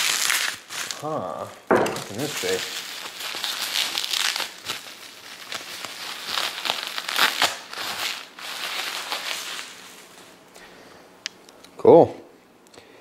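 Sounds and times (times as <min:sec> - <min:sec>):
packaging crinkling and rustling: 0:00.0 - 0:10.4.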